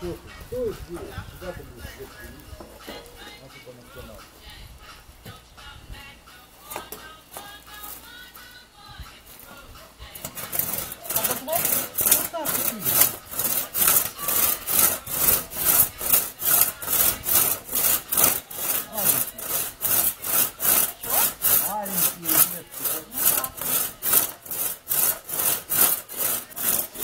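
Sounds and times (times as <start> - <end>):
crosscut saw rasping through wood: 10.2 - 27.0.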